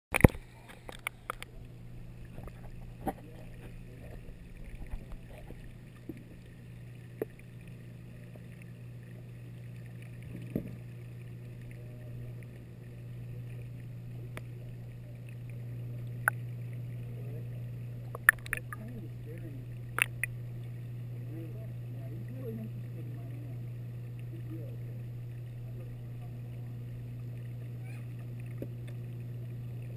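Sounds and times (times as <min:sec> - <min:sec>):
aquarium pumps humming: 0:00.1 - 0:29.9
moving water: 0:00.1 - 0:29.9.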